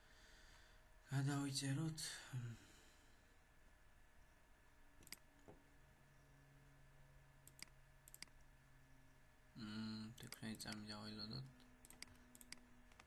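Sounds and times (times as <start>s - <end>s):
faint low hum: 0.0s - 13.0s
computer mouse clicks: 5.0s - 5.5s, 7.4s - 8.4s, 10.1s - 10.9s, 11.8s - 13.0s.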